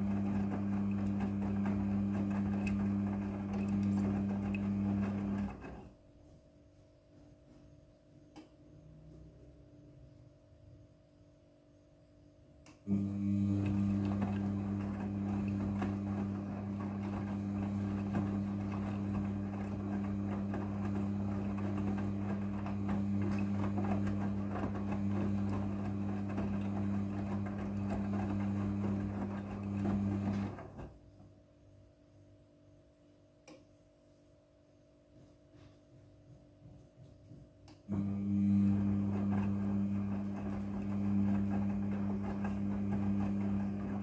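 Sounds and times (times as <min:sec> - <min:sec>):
washing machine motor hum: 0:00.0 - 0:06.2, 0:12.8 - 0:31.4, 0:36.4 - 0:44.0.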